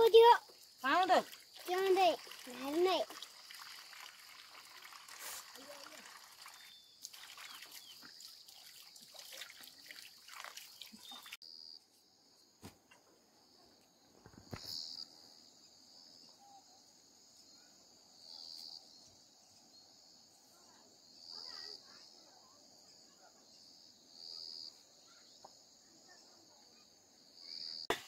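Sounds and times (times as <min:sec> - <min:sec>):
water splashing in metal pot: 0:01.0 - 0:11.4.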